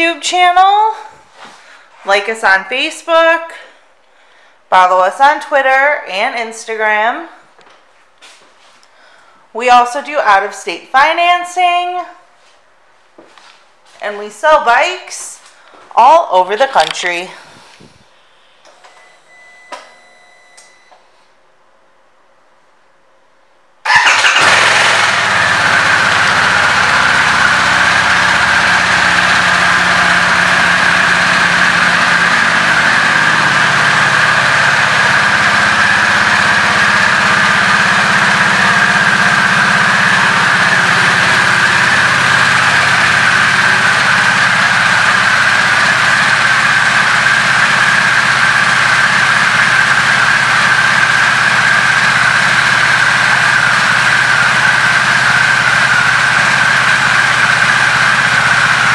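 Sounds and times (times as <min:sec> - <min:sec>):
motorcycle engine idling: 0:23.9 - 0:58.9.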